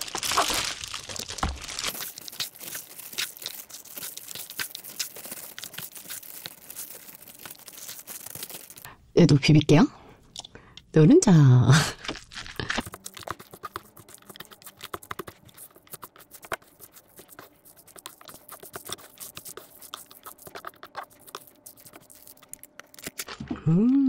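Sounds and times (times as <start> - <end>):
spoon scraping a bowl: 12.8 - 23.2.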